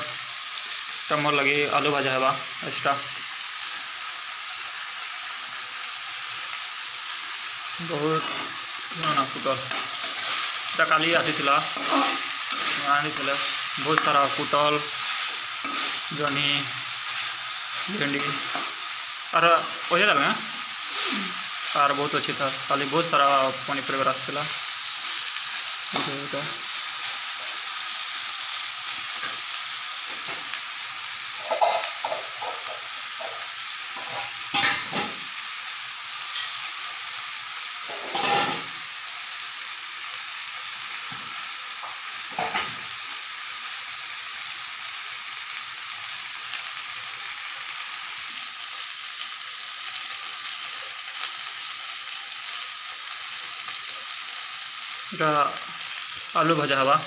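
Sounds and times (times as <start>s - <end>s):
vegetables sizzling in oil: 0.0s - 57.0s
metal spatula scraping a pan: 8.1s - 18.9s, 34.0s - 35.2s, 36.3s - 36.7s, 37.9s - 38.7s.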